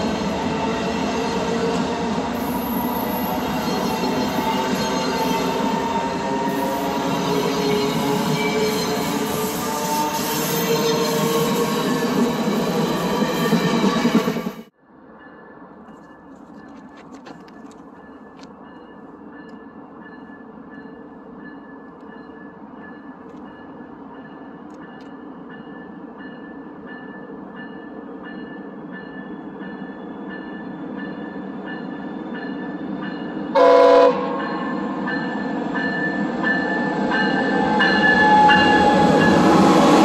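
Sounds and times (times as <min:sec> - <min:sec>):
passenger train rumble: 0:00.0 - 0:40.0
train horn blast: 0:33.5 - 0:34.7, 0:37.7 - 0:39.2.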